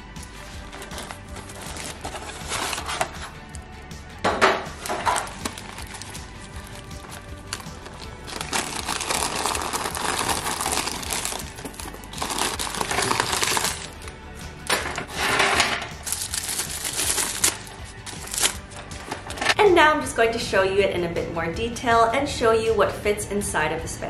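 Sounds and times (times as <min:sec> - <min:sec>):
background music: 0:00.0 - 0:24.0
tissue paper crumpling: 0:00.7 - 0:03.3, 0:05.1 - 0:14.1, 0:16.0 - 0:19.4.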